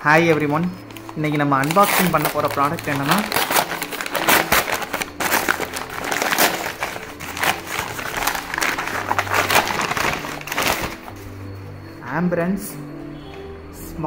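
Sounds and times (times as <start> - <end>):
paper tearing and crinkling: 0.3 - 11.2.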